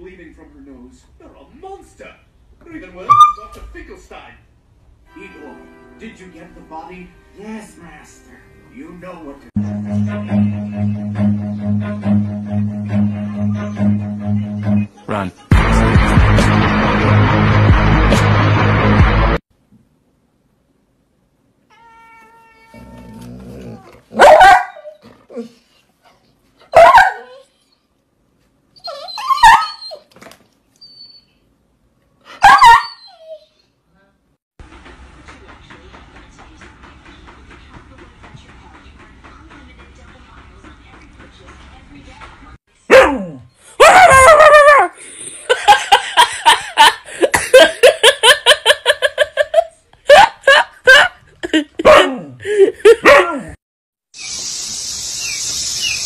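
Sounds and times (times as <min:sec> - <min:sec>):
dog whining yelps: 0:03.1 - 0:03.5, 0:23.7 - 0:25.0, 0:26.7 - 0:27.8, 0:28.8 - 0:30.1, 0:32.4 - 0:33.7, 0:42.9 - 0:44.9
person laughing hard: 0:44.0 - 0:53.4.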